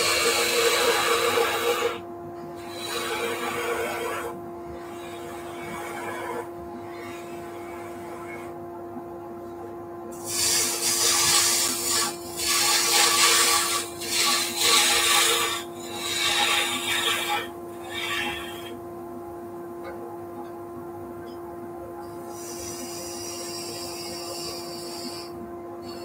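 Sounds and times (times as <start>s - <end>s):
lathe tool scraping wood: 0.0s - 2.0s, 2.6s - 8.5s, 10.2s - 18.8s, 22.4s - 26.0s
steady lathe hum: 0.0s - 8.6s, 10.2s - 18.8s, 22.3s - 26.0s.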